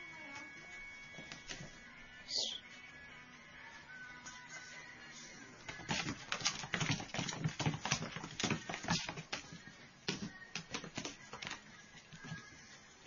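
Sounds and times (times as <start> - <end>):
cat paws scrabbling on wooden floor: 5.6 - 12.7.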